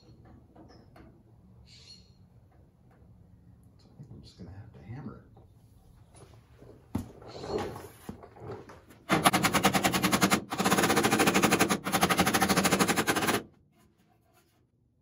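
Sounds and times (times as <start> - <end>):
air hammer rattling on steel: 9.1 - 13.4.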